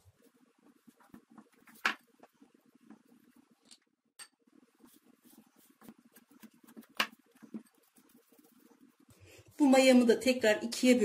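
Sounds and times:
hand squishing dough: 4.5 - 10.3.

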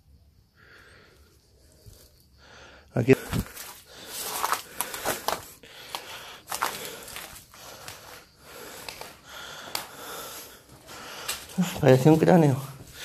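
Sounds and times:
footsteps crunching dry leaves: 3.2 - 8.3.

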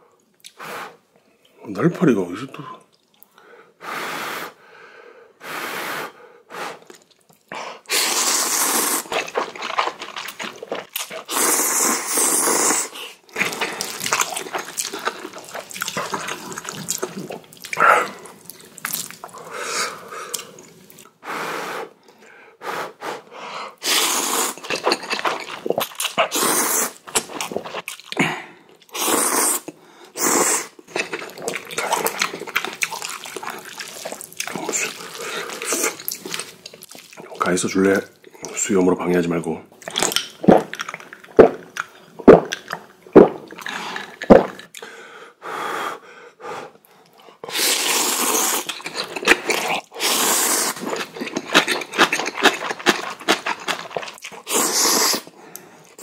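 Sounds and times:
person slurping noodles: 7.8 - 22.0, 22.8 - 37.4, 47.5 - 55.4.

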